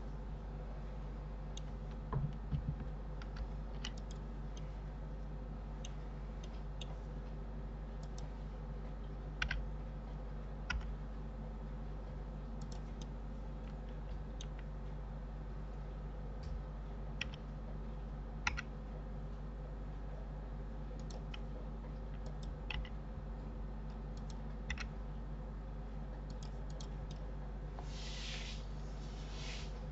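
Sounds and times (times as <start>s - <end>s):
steady low hum: 0.0s - 29.9s
keyboard and mouse clicks: 1.5s - 4.7s, 8.0s - 8.3s, 9.4s - 9.7s, 10.6s - 11.0s, 12.6s - 14.7s, 17.2s - 17.5s, 18.4s - 18.7s, 21.0s - 23.0s, 24.1s - 25.0s, 26.2s - 27.3s.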